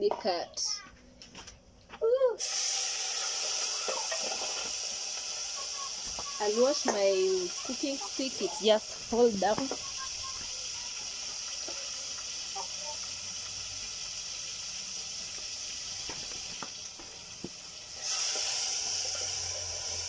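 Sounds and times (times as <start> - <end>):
onions sizzling in oil: 2.4 - 20.0.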